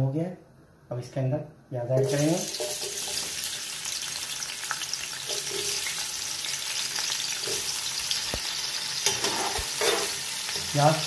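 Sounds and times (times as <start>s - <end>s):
onions sizzling in oil: 2.0s - 11.0s.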